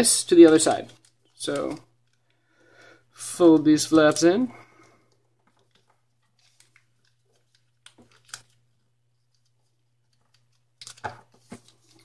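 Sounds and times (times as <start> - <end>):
paper crinkling being folded: 5.4 - 12.0.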